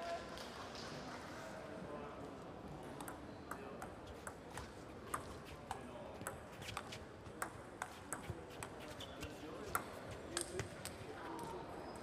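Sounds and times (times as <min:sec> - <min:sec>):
ping pong ball clicking off bats: 0:02.8 - 0:08.9, 0:09.6 - 0:11.0.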